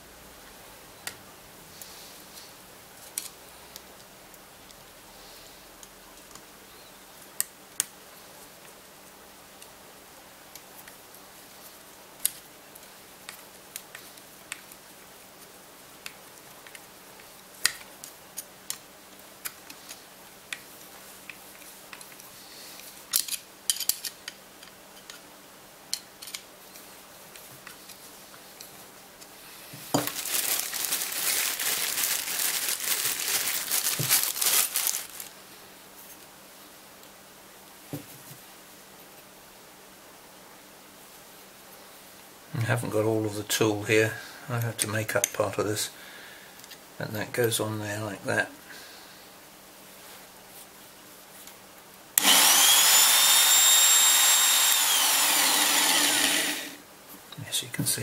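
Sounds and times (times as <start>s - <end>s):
plastic bag crinkling: 29.9s - 35.3s.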